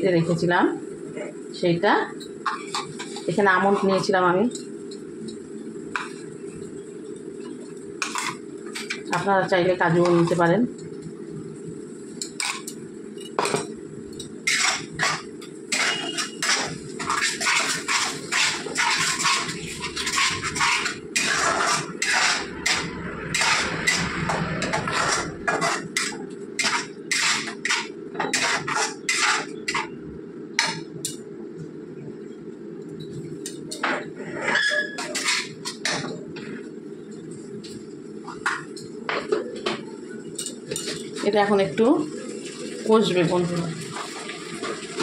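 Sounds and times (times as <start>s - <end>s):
metal spatula scraping a pan: 2.4s - 4.7s, 8.0s - 9.1s, 12.3s - 30.0s, 33.7s - 36.0s.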